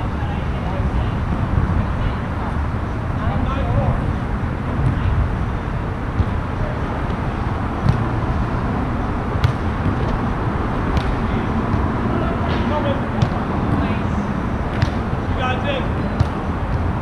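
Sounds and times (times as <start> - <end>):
road traffic rumble: 0.0 - 17.0
volleyball being struck: 7.8 - 8.2, 9.4 - 10.2, 10.9 - 13.5, 14.7 - 15.2.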